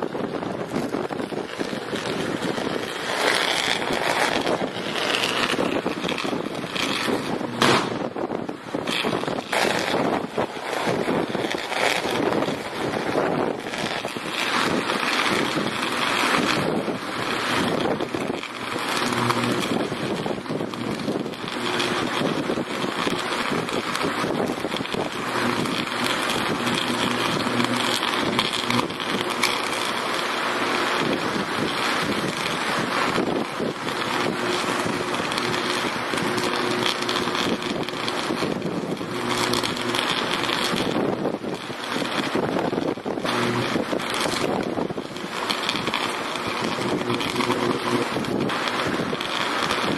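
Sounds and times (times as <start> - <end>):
electric arc crackling buzz: 0.0 - 49.9
low steady hum: 10.4 - 41.9.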